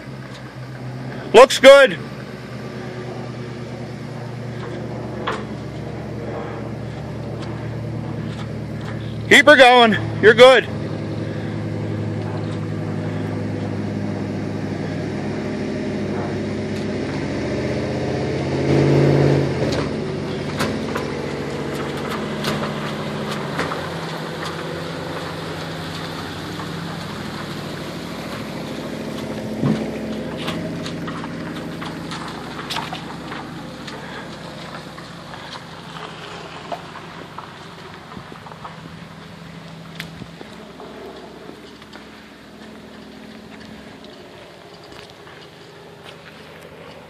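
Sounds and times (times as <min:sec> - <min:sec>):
truck engine under load: 0:00.0 - 0:47.0.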